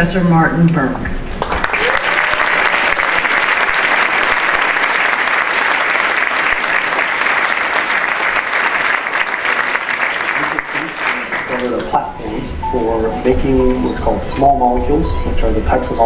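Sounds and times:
audience applauding: 1.3 - 12.1.

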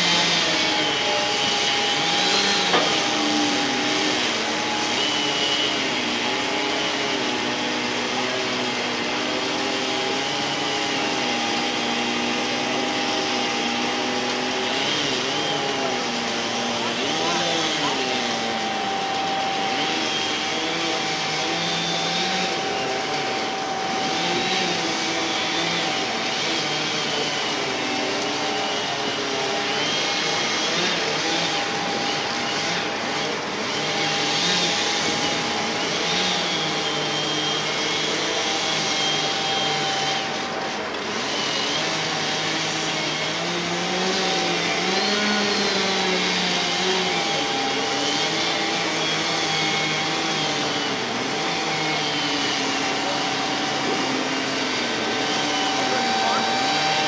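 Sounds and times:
excavator engine and hydraulic whine: 0.0 - 57.0.

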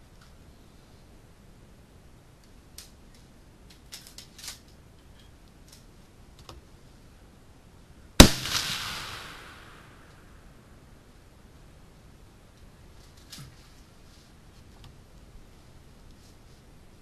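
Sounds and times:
rifle shot echoing: 8.2 - 10.5.

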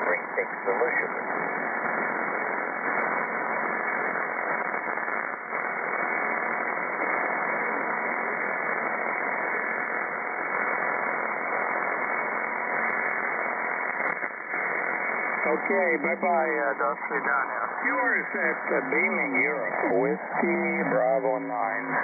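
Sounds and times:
radio static hiss: 0.0 - 22.0
faint radio whistles: 11.6 - 22.0.

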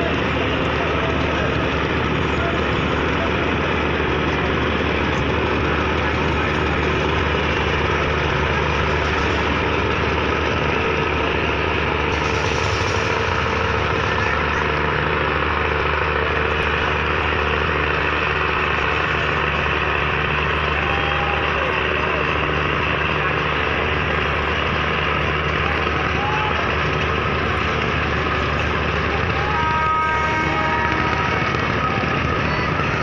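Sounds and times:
boat engine droning: 0.0 - 33.0.

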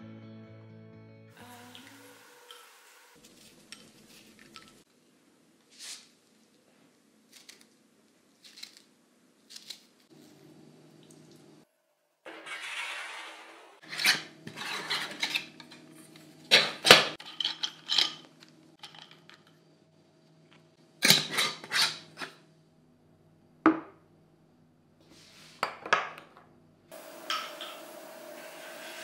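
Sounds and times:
steady hiss: 1.4 - 4.9.

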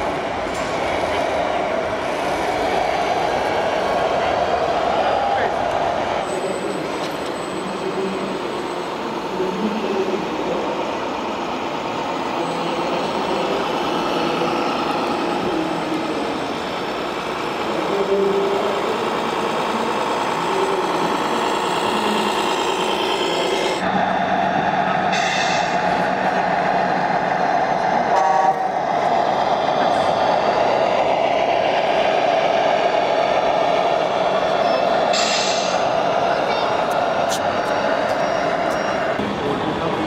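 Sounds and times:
model truck engine sound: 12.2 - 40.0.

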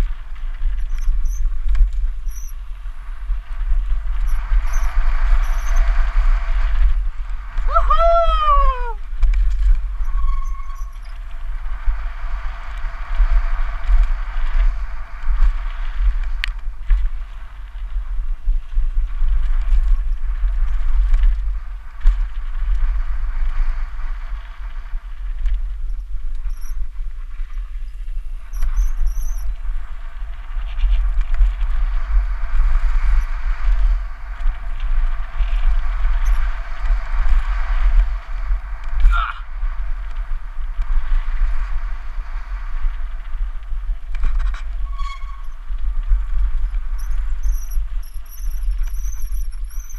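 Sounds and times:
wind rumble on microphone: 0.0 - 49.9
brief high squeaks: 2.3 - 2.6, 10.0 - 11.1, 44.8 - 45.6.

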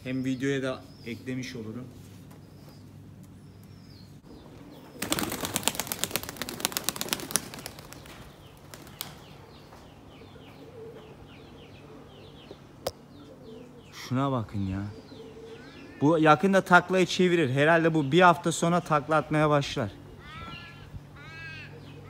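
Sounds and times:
pigeon wings flapping: 5.0 - 9.3.

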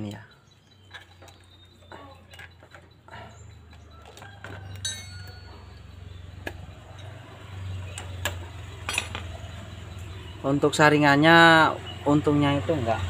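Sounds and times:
metal parts and tools clicking: 0.8 - 10.1.

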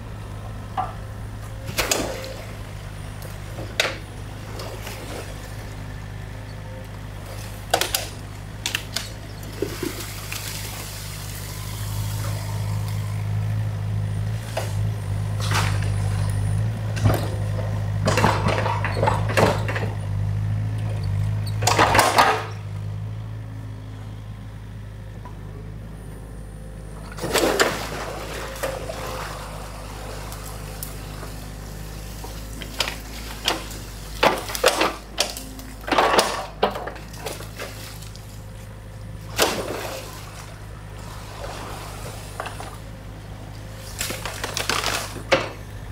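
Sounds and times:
stream water running: 0.0 - 19.9, 26.9 - 45.9
diesel engine running: 0.0 - 45.9
bucket knocking and branches cracking: 7.3 - 11.4, 15.4 - 16.2, 16.9 - 20.0, 27.1 - 38.5, 39.2 - 40.7, 43.8 - 45.9.

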